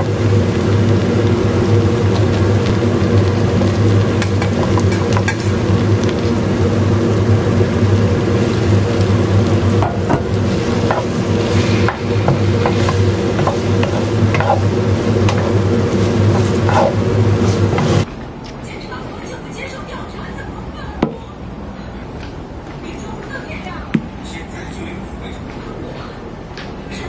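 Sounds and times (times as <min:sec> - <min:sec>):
food sizzling in a frying pan: 0:00.0 - 0:18.1
steady low hum: 0:00.0 - 0:27.0
spatula scraping a pan: 0:09.8 - 0:18.0.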